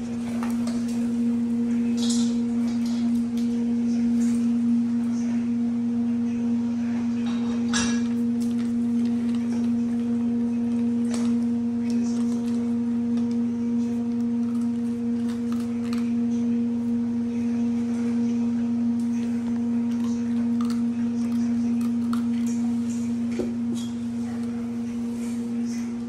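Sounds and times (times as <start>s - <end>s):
steady low hum: 0.0s - 26.0s
puppy crunching dry kibble: 7.2s - 16.7s, 19.0s - 25.0s.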